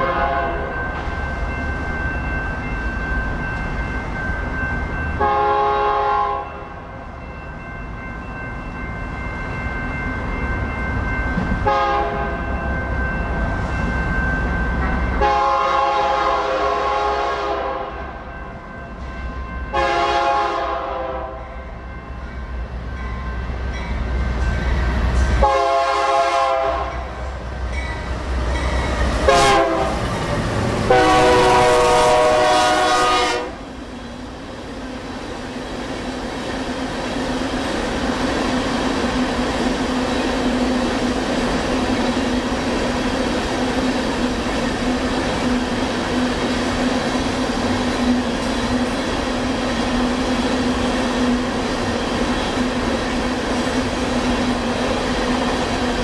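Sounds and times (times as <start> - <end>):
locomotive air horn blasts: 0.0 - 0.7, 5.2 - 6.6, 11.6 - 12.4, 15.2 - 18.1, 19.7 - 21.5, 25.4 - 27.1, 29.3 - 30.0, 30.9 - 33.6
train rumble: 0.0 - 56.0.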